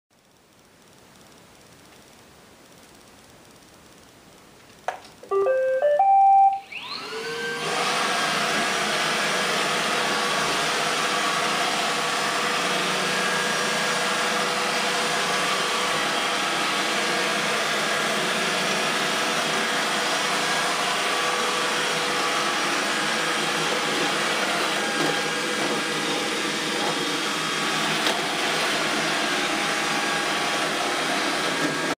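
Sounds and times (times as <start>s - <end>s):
robot vacuum startup tune: 5.2s - 7.5s
vacuum motor and brushes whining: 5.4s - 32.0s.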